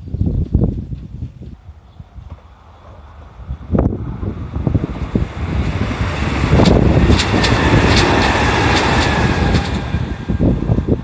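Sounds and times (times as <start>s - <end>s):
wind buffeting microphone: 0.0s - 11.0s
electric train passing: 1.6s - 11.0s
wheel clacks over rail joints: 6.0s - 10.1s.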